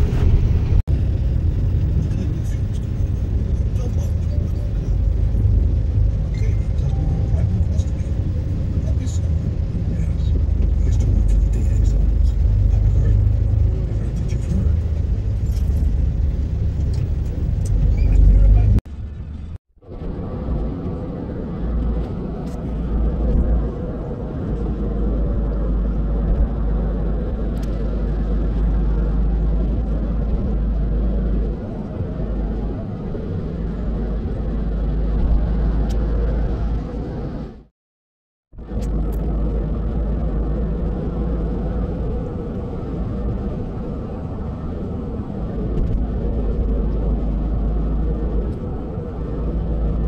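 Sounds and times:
road noise: 0:00.0 - 0:37.7, 0:38.5 - 0:50.0
vehicle rumble from inside cabin: 0:00.0 - 0:37.7, 0:38.6 - 0:50.0.

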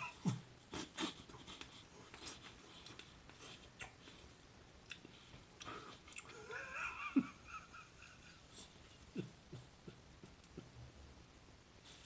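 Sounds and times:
man laughing: 0:06.3 - 0:10.8.

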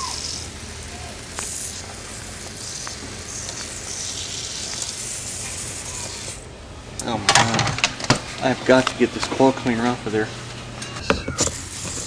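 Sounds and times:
pump sprayer hissing: 0:00.0 - 0:06.6, 0:11.3 - 0:12.0
steady low hum: 0:00.0 - 0:12.0.

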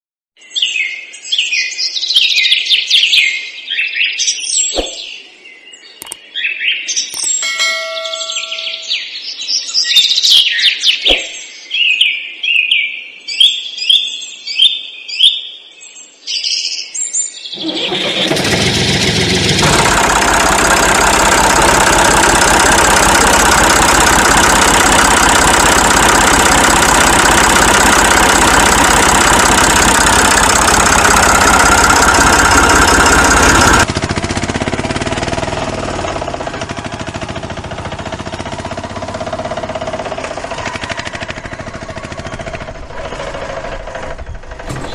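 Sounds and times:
chirping: 0:07.1 - 0:09.2
engine running: 0:17.5 - 0:44.9.

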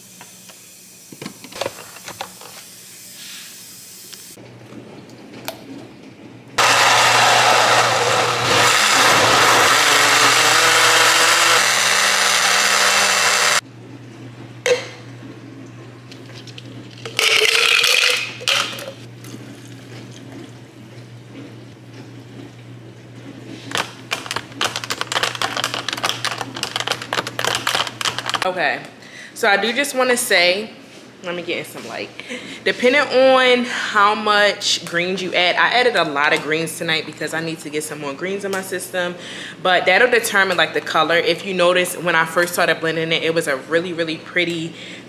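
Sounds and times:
countertop blender running: 0:06.6 - 0:13.7, 0:17.1 - 0:20.4, 0:23.5 - 0:28.5.

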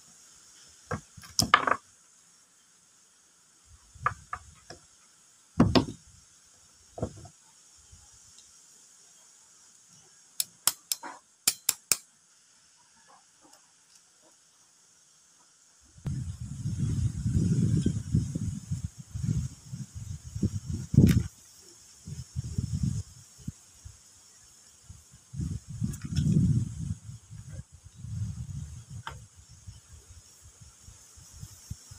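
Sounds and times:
metal parts knocking on wood: 0:05.6 - 0:06.0
sharp metallic clicks: 0:10.4 - 0:12.1.

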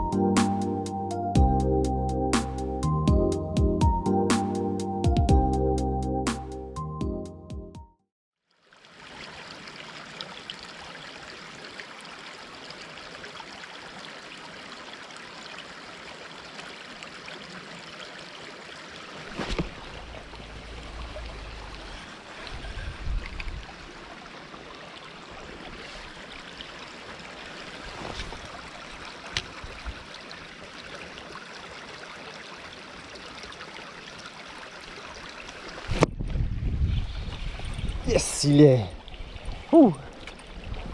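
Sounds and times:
river water flowing: 0:08.5 - 0:36.0, 0:37.4 - 0:40.9.

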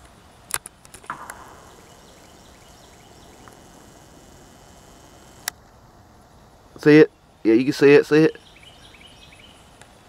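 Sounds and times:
sharp clicks and knocks: 0:00.5 - 0:05.6
faint steady hush: 0:01.1 - 0:10.0.

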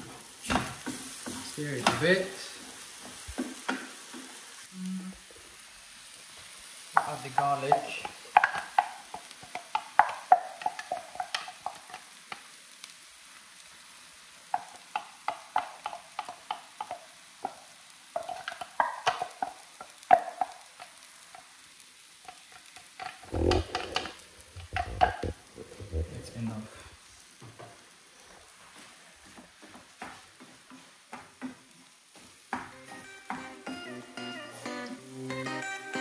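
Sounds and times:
faint sizzle: 0:00.0 - 0:36.0
wooden spoon scraping frying pan: 0:06.5 - 0:12.5, 0:14.5 - 0:21.5, 0:22.3 - 0:26.9.

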